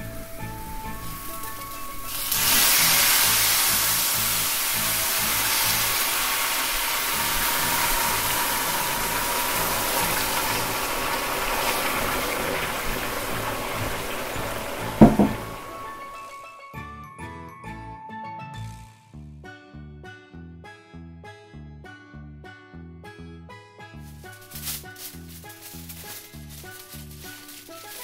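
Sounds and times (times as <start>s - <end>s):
liquid sizzling in a hot pan: 0.3s - 16.4s.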